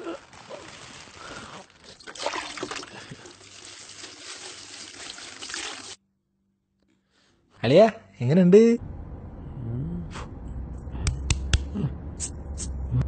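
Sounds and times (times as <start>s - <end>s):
running water splashing: 2.0s - 6.0s.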